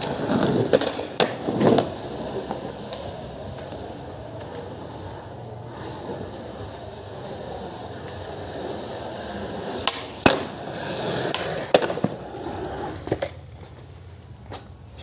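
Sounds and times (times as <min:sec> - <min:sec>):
skateboard clacks: 0:00.0 - 0:15.0
skateboard rolling on concrete: 0:00.0 - 0:15.0.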